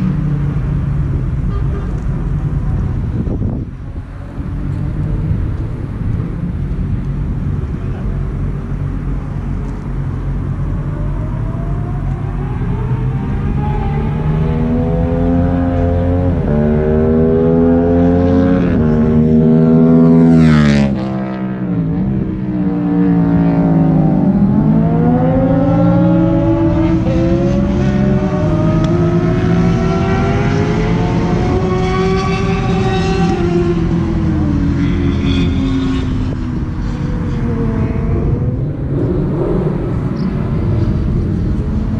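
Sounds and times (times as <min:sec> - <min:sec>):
car engines revving through gears: 0:00.0 - 0:41.9
car passing close: 0:25.0 - 0:41.9.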